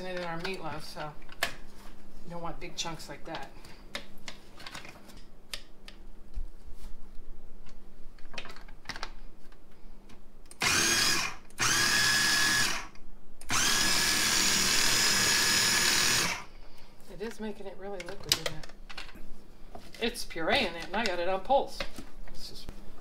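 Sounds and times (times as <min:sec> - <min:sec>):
food processor motor running: 0:10.6 - 0:12.9, 0:13.5 - 0:16.5.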